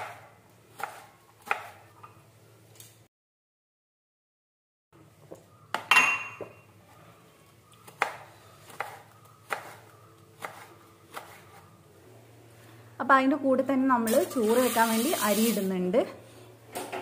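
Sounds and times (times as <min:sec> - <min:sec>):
knife chopping on wooden board: 0:00.8 - 0:01.8, 0:07.9 - 0:09.8, 0:10.4 - 0:11.6.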